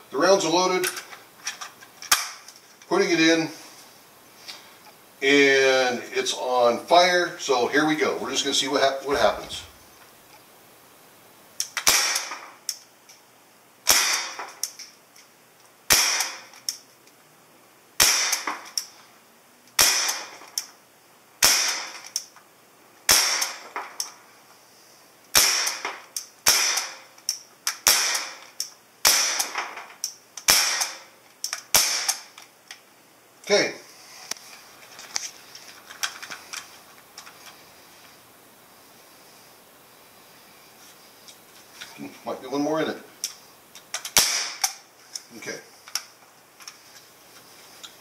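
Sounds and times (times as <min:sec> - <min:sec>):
air rifle firing sharp pops: 0:11.7 - 0:12.5, 0:13.8 - 0:14.7, 0:15.9 - 0:16.5, 0:18.0 - 0:18.7, 0:19.8 - 0:20.4, 0:21.4 - 0:22.0, 0:23.1 - 0:24.0, 0:25.3 - 0:27.1, 0:27.7 - 0:29.8, 0:30.4 - 0:31.1, 0:31.7 - 0:32.3, 0:44.1 - 0:44.8.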